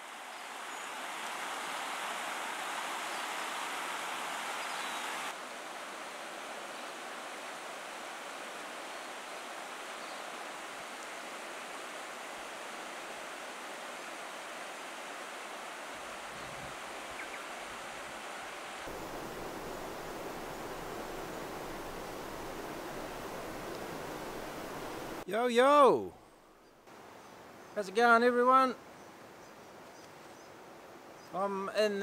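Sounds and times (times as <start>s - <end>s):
stream running over stones: 0.0s - 25.2s.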